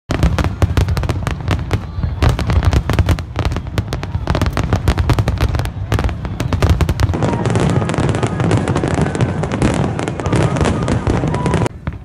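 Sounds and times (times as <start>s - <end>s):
fireworks cracking and banging: 0.1s - 12.0s.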